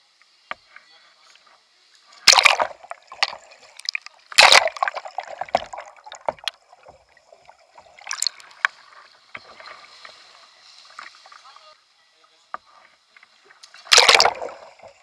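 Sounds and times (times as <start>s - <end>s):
muffled underwater sloshing: 2.0s - 11.6s, 12.7s - 15.0s
kayak splashing in water: 2.1s - 11.6s, 13.2s - 15.0s.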